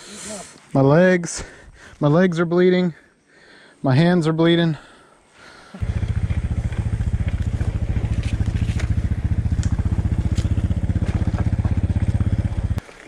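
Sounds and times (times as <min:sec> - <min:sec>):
motorcycle engine idling: 0:05.8 - 0:12.8.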